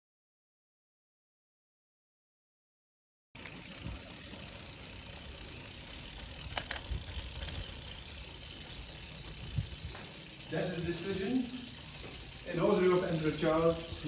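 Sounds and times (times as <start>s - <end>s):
bicycle rolling over cobblestones: 3.4s - 14.0s.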